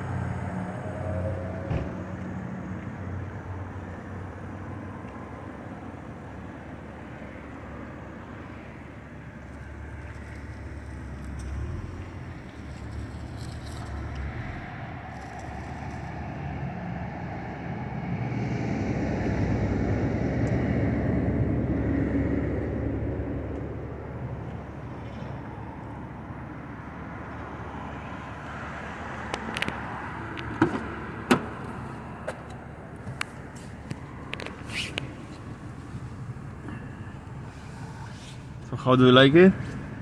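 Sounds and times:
car door opening and shutting: 1.6 - 2.1, 30.4 - 35.6.

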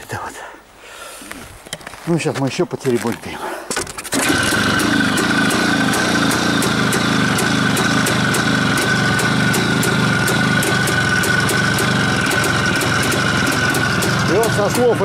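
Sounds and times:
two-stroke motorcycle engine running: 4.1 - 15.0.

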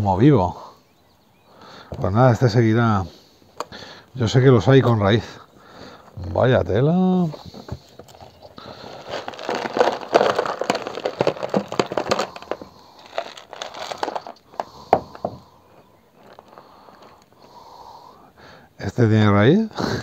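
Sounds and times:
soil rustling and clicking: 6.0 - 17.8
plastic plant pot crackling: 7.1 - 17.6.

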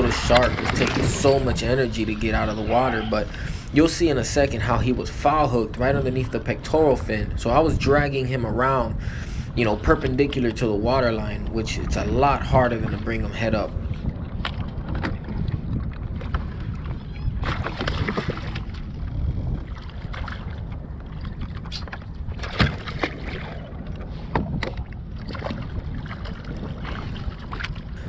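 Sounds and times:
water slapping against kayak hull: 0.0 - 3.8, 13.9 - 28.0
wind buffeting microphone: 0.0 - 28.0.

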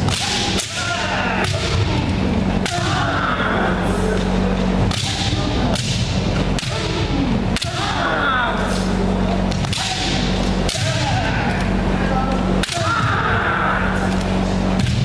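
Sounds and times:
bamboo swords cracking: 0.0 - 1.8, 2.6 - 3.2, 4.9 - 6.9, 7.5 - 8.9, 9.5 - 11.2, 12.6 - 13.2
fighters shouting: 0.0 - 15.0.

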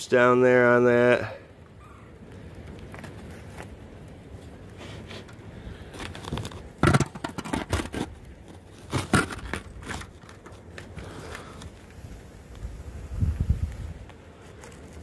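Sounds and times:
wood chips clicking and scraping: 2.2 - 12.8, 13.6 - 15.0.

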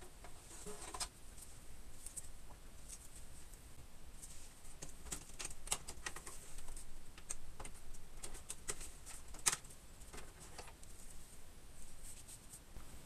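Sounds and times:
small clicks and light knocks of parts: 4.8 - 11.0.

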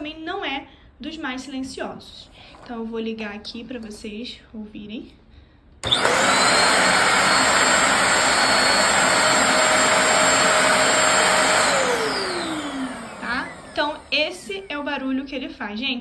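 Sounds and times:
vacuum motor winding down: 5.8 - 14.8
vacuum cleaner whining: 5.8 - 15.0.

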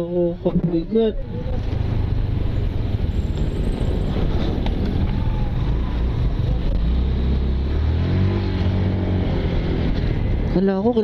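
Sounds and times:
road noise: 0.0 - 11.0
motorcycle engine hum: 0.4 - 11.0
wind buffeting microphone: 0.7 - 6.9.

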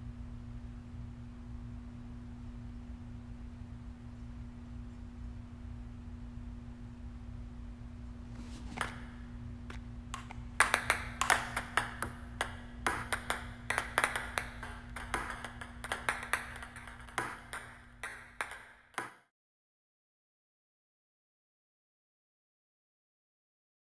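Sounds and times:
steady low hum: 0.0 - 19.0
ping-pong balls bouncing: 8.7 - 19.3.

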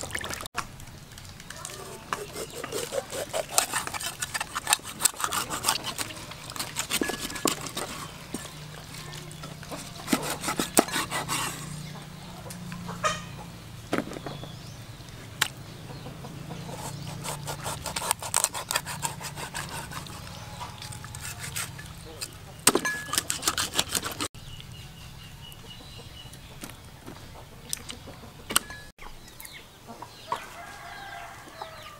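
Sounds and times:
knife cutting fish on board: 9.7 - 11.6.

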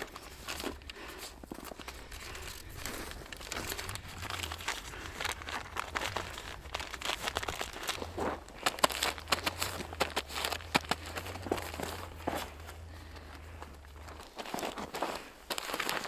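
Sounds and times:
foil packet crinkling: 0.0 - 13.2, 13.8 - 16.0.

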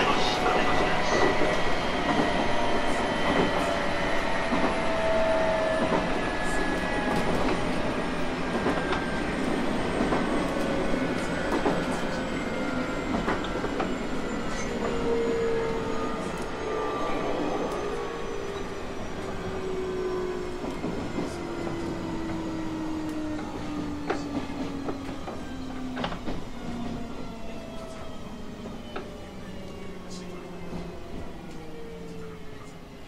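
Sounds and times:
faint train whine: 0.0 - 33.0
train running noise: 0.0 - 33.0.

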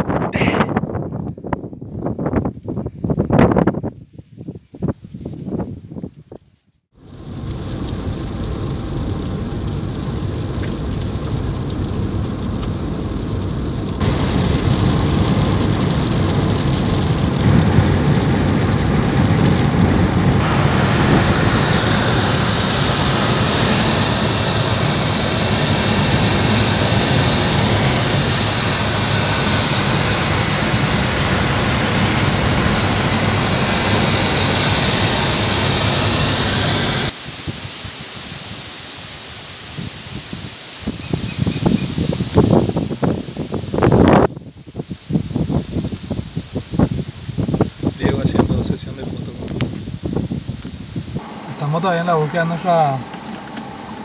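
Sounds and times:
heavy rain: 0.3 - 0.6, 7.0 - 54.0
car road noise: 7.0 - 37.2, 51.2 - 54.0.

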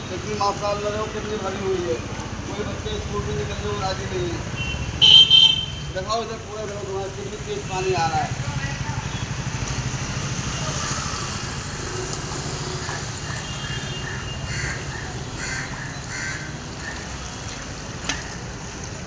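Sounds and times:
bird calling: 12.6 - 17.2.

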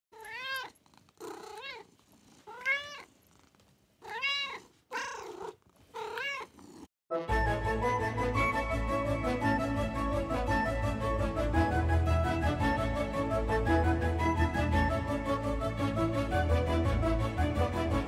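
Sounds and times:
cat meowing: 0.2 - 1.9, 2.5 - 3.1, 4.0 - 6.6.

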